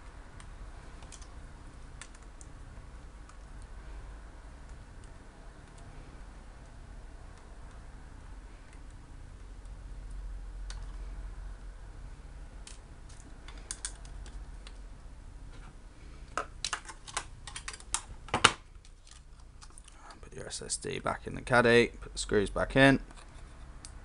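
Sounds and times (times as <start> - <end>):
hands handling small parts clicks: 12.6 - 14.8.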